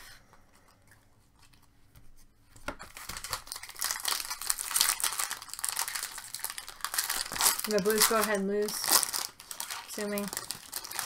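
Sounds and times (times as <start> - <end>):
foil wrapper tearing and crinkling: 2.8 - 11.0.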